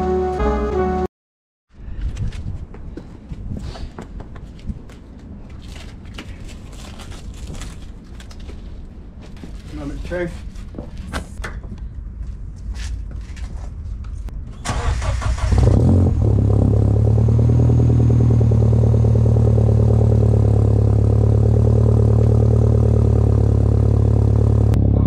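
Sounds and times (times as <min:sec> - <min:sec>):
car engine revving and idling: 0:14.7 - 0:25.0.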